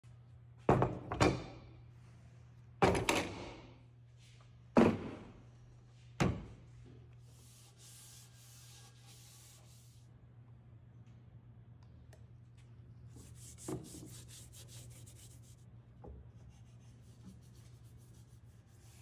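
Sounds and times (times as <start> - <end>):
gloved hand rubbing rusty bar: 13.2 - 15.6.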